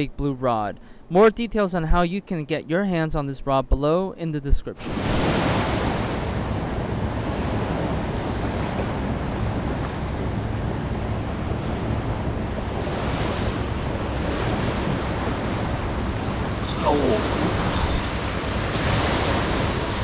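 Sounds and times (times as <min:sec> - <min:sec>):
surf washing up beach: 0:04.8 - 0:20.0
wind buffeting microphone: 0:04.8 - 0:20.0.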